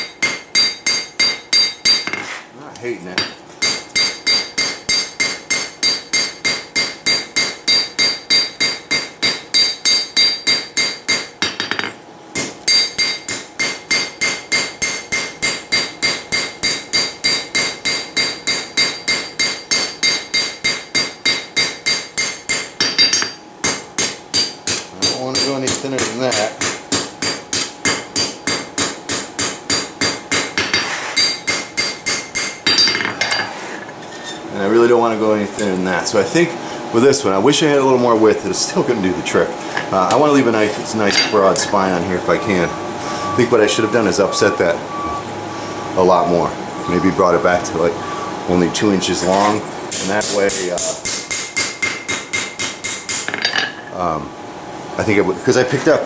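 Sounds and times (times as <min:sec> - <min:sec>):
hammer striking blade on anvil: 0:00.0 - 0:02.3, 0:03.2 - 0:33.5, 0:49.2 - 0:53.8.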